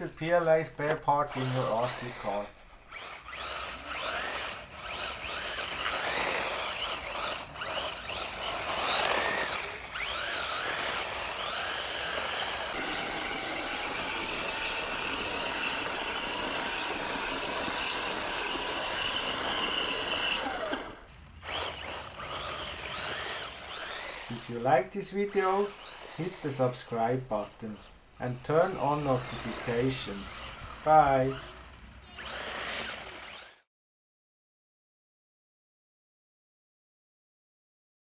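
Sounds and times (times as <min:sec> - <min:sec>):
toy truck electric motor whining: 0:00.0 - 0:33.7.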